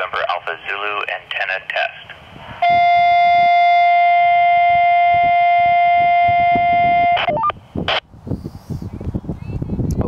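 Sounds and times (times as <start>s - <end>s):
higher beeps: 2.6s - 7.6s
buzzy radio test tone: 2.6s - 8.0s.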